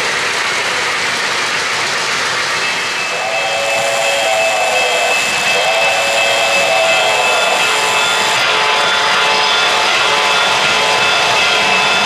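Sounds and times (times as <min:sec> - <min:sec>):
whining tones: 0:02.6 - 0:10.4.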